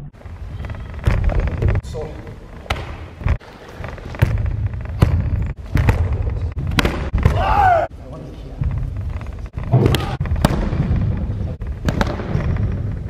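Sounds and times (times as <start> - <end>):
person shouting: 7.3 - 7.9.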